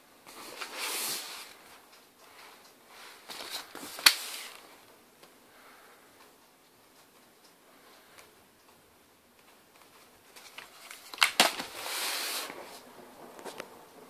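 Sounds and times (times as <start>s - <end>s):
laptop brushing and rustling: 0.3s - 4.8s, 9.4s - 13.8s.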